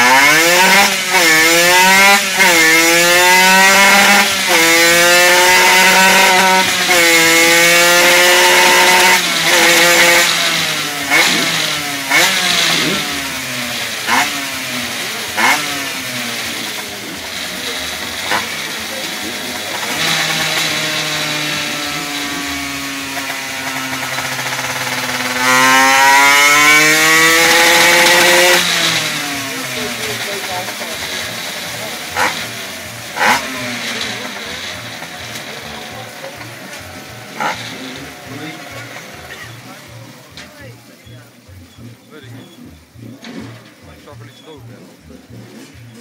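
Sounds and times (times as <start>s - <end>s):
two-stroke engine revving: 0.0s - 46.0s.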